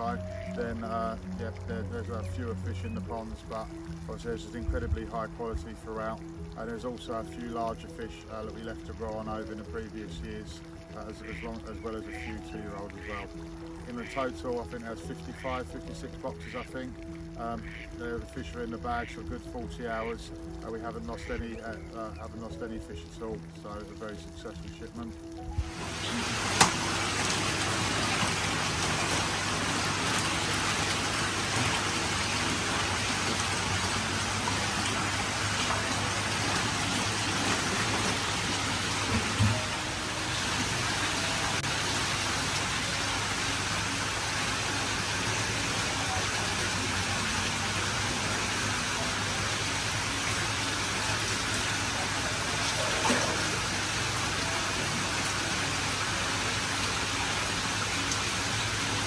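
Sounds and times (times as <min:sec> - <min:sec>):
water pouring from pipes: 0:00.0 - 0:59.0
fish splashing in water: 0:25.6 - 0:59.0.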